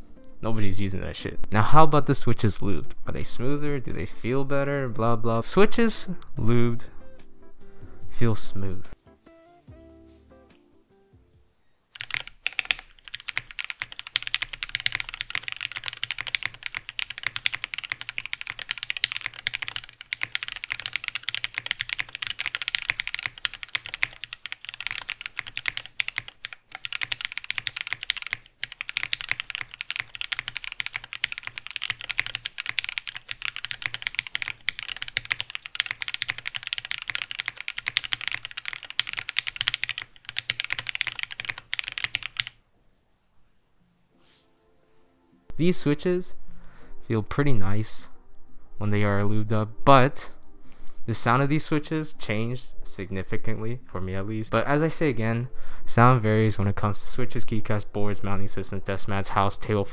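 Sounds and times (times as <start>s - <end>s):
fast typing on mechanical keyboard: 12.0s - 42.6s.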